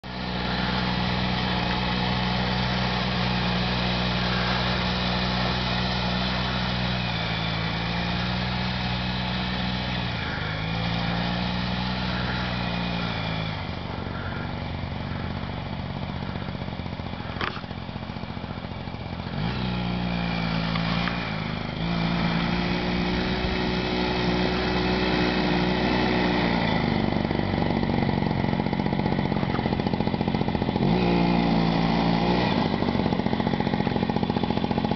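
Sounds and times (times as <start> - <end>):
snowmobile engine running: 0.0 - 34.9.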